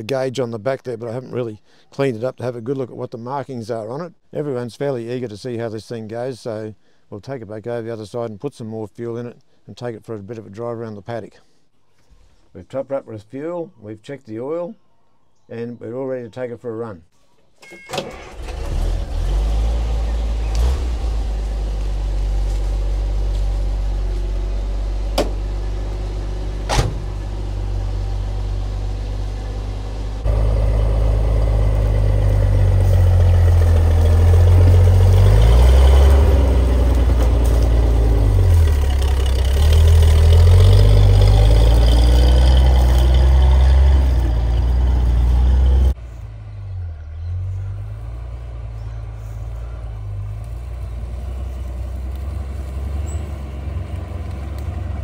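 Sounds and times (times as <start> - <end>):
truck engine running: 18.0 - 55.0.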